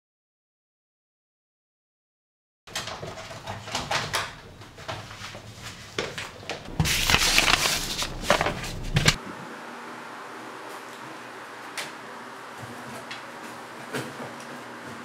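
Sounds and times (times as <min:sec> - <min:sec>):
papers rustling: 0:02.7 - 0:09.2
wire hangers clattering: 0:02.7 - 0:09.2.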